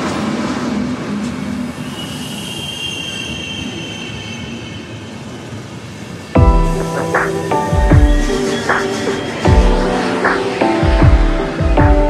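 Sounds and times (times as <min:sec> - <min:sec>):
electric train rumbling: 0:00.0 - 0:12.0
train wheels squealing: 0:01.4 - 0:06.4.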